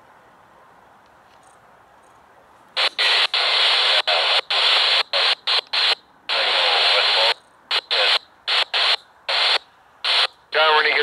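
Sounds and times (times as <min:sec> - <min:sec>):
faint garbled radio voice: 0:02.8 - 0:11.0
radio static bursts: 0:02.8 - 0:11.0.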